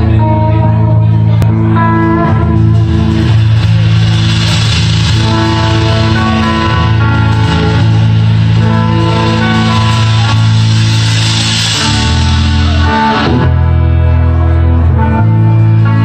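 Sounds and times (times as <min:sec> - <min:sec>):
bass guitar low notes: 0:00.0 - 0:16.0
live rock band playing: 0:00.0 - 0:16.0
cymbal wash: 0:02.4 - 0:14.0.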